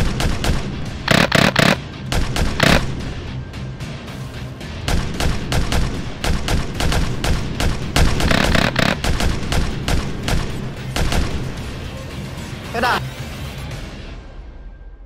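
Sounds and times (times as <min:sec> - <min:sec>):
paintball guns firing: 0:00.0 - 0:03.0, 0:04.9 - 0:11.7.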